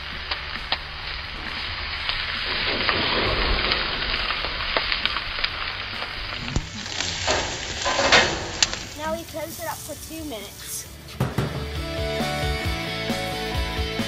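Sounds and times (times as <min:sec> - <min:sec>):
steaks sizzling on a grill: 0:00.0 - 0:11.0.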